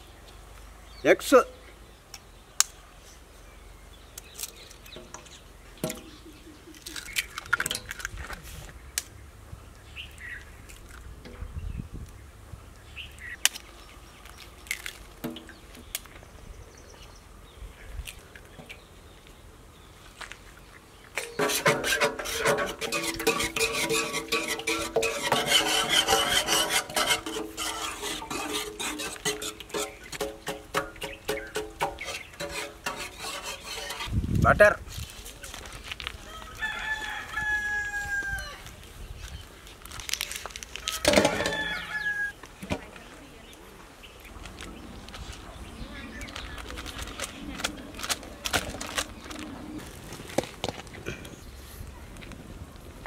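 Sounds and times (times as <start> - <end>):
egg shells cracking: 6.7 - 8.2
whisk beating in metal pot: 21.2 - 34.1.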